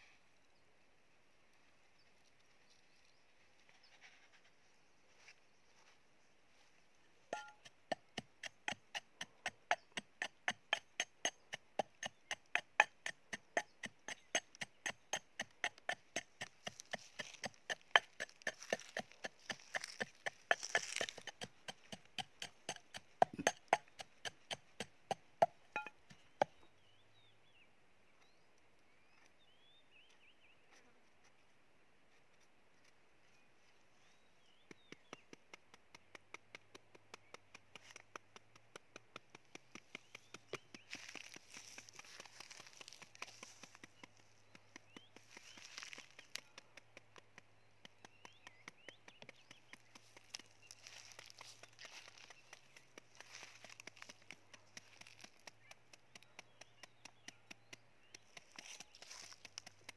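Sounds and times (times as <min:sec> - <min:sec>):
pestle pounding in metal bowl: 0:07.4 - 0:26.0, 0:48.2 - 0:57.6.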